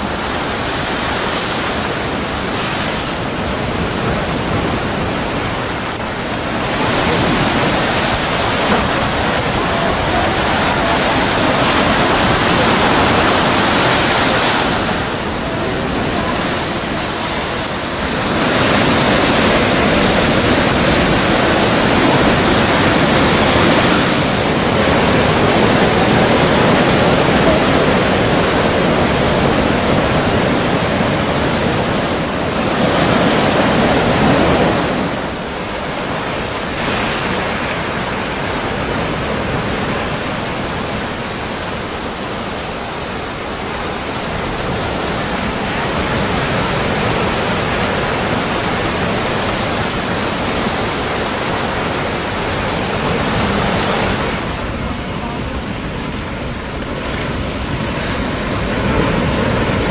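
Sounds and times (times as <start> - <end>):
strong wind over rough sea: 0.0 - 59.9.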